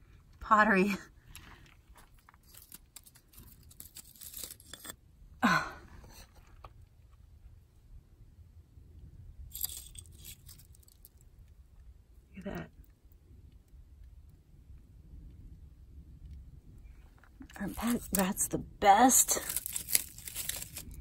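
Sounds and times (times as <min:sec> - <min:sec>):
dry twigs rustling and crunching: 0:01.2 - 0:05.0, 0:09.5 - 0:11.3, 0:17.2 - 0:21.0.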